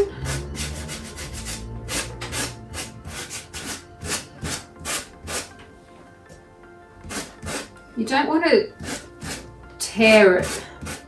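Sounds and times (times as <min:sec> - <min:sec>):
sandpaper rasping on wood: 0:00.0 - 0:05.5, 0:07.1 - 0:07.7, 0:08.8 - 0:09.5, 0:10.3 - 0:11.0.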